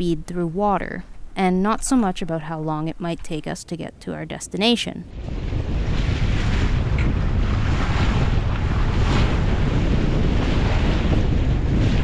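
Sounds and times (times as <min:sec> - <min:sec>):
wind buffeting microphone: 0:00.0 - 0:12.0
waves splashing against hull: 0:05.1 - 0:12.0.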